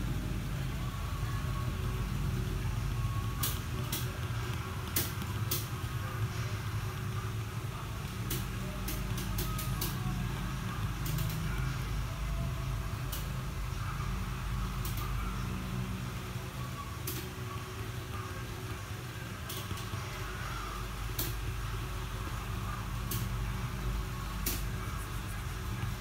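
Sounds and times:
low room hum: 0.0 - 26.0.

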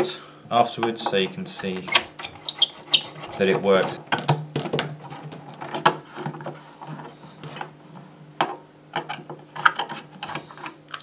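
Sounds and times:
plastic clicks and knocks: 4.1 - 6.6.

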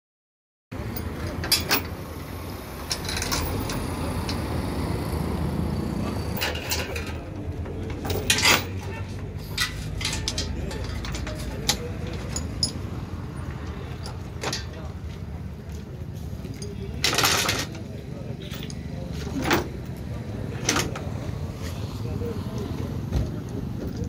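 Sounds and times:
metal chain clinking: 2.9 - 4.4, 6.1 - 13.0.

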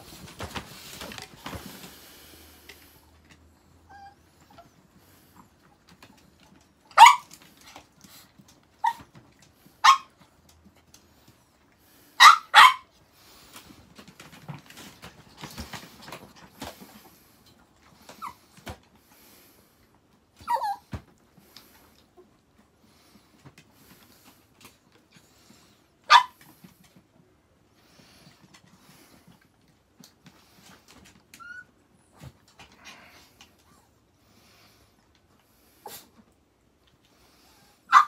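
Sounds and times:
scuffling and rustling: 0.0 - 2.3
small dog yapping: 6.9 - 7.4, 12.2 - 12.9, 20.4 - 20.9, 26.1 - 26.4.

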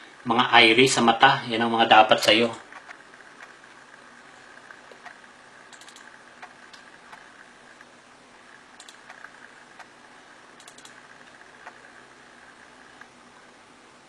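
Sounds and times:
faint steady hiss: 0.0 - 14.0
computer mouse clicks: 2.5 - 3.6, 4.6 - 7.9, 8.8 - 10.0, 10.6 - 13.1.

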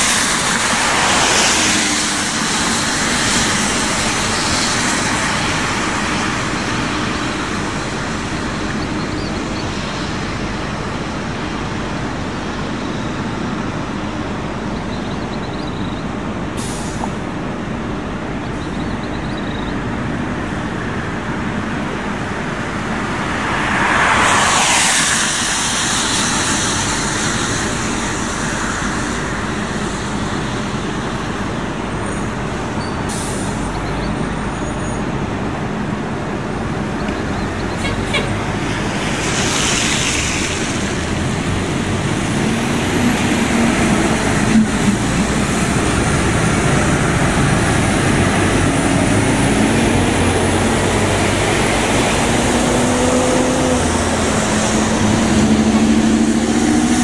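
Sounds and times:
buses running: 0.0 - 57.0
air brake hiss: 16.6 - 17.1, 33.1 - 33.6.

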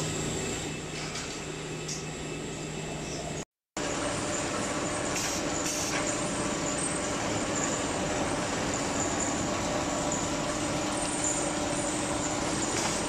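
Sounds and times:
factory machinery humming and hissing: 0.0 - 13.0.

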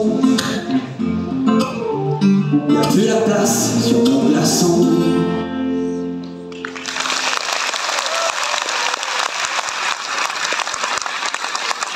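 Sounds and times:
audience applauding: 6.5 - 11.9.

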